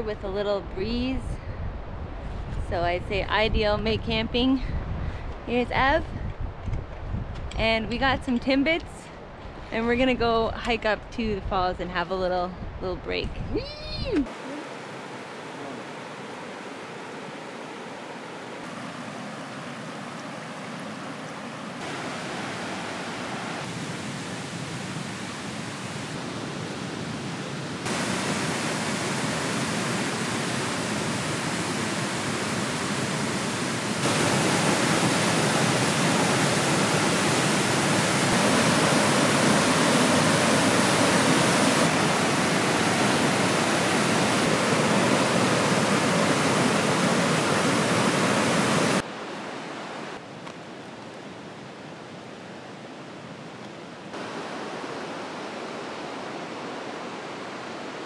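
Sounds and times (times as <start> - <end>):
rushing whitewater: 14.2 - 50.2, 54.1 - 58.0.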